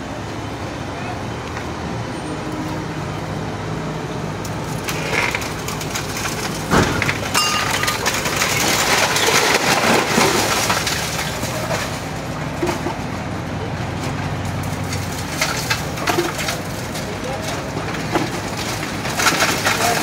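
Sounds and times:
cracks and clicks: 4.4s - 20.0s.

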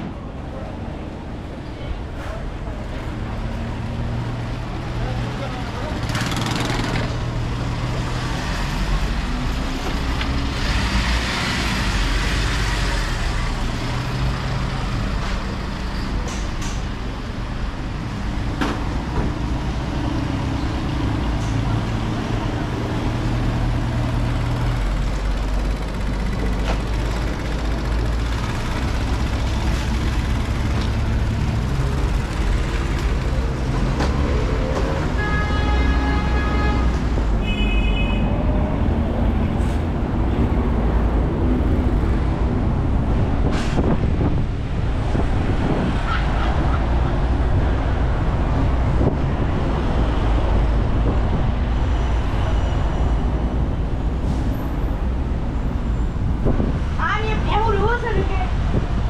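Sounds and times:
passing cars and trucks: 0.0s - 59.0s.

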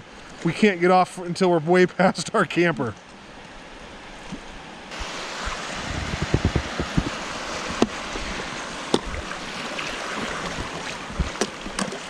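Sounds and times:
river water rushing: 3.2s - 12.0s
low thumps: 5.9s - 8.0s.

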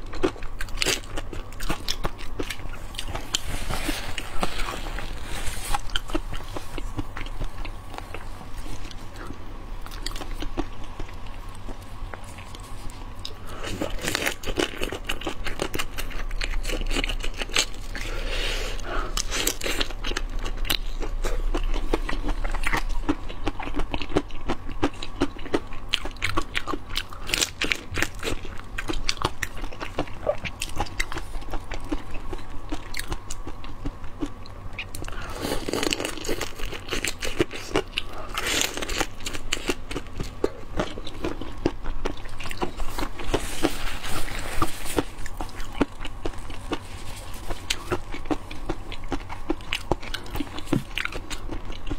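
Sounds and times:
wet chewing: 18.8s - 51.9s.

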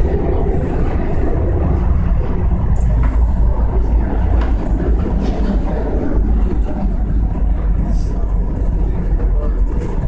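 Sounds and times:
subway car rumbling on rails: 0.0s - 10.0s.

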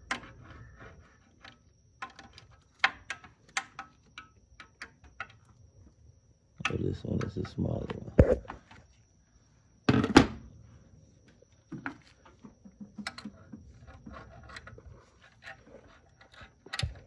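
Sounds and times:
faint high whine: 3.4s - 17.0s.

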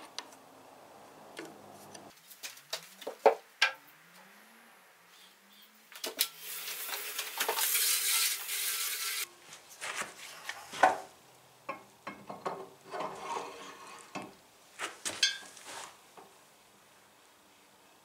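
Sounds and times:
rough scraping hiss: 12.9s - 15.0s.

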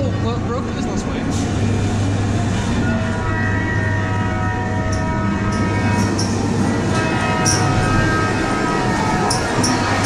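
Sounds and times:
sustained horn-like tones: 2.6s - 10.0s.

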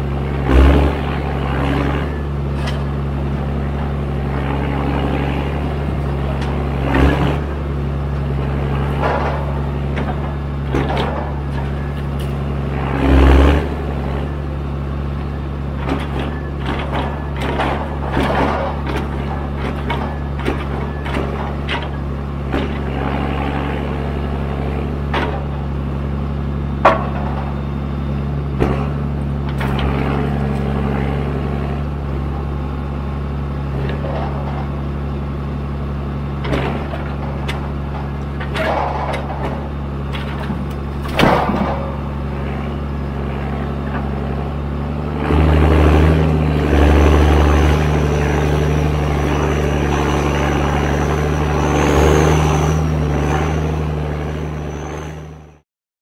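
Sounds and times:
diesel engine running: 0.0s - 55.6s
sharp knocks and clunks: 8.2s - 13.2s, 15.8s - 23.0s, 25.0s - 25.6s, 26.8s - 27.8s, 36.4s - 42.1s.

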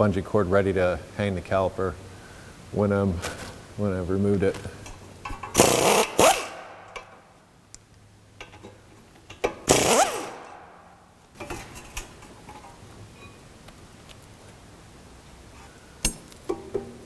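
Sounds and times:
power tool whirring: 5.6s - 6.6s, 9.7s - 10.5s.

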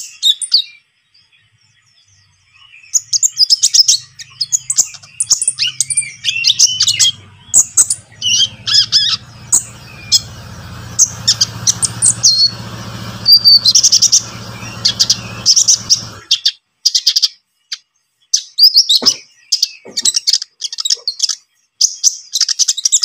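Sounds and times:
bird twittering chirps and trills: 0.0s - 23.0s
low steady hum: 3.8s - 16.3s.

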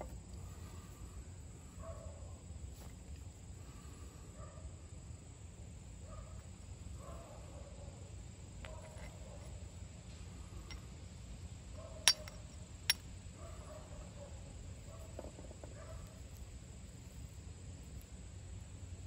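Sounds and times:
steel striker scraping flint: 8.6s - 9.6s, 12.1s - 13.0s.

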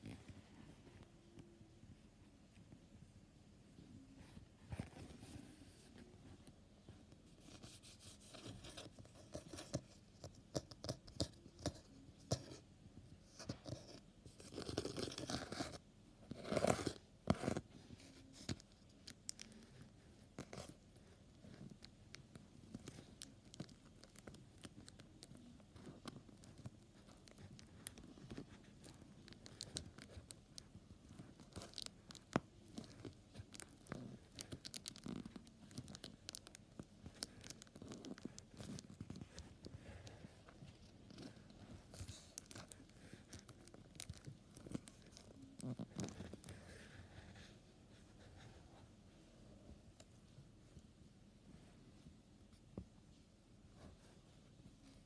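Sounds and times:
scratching and tapping on cardboard: 7.4s - 12.6s, 21.4s - 47.5s.

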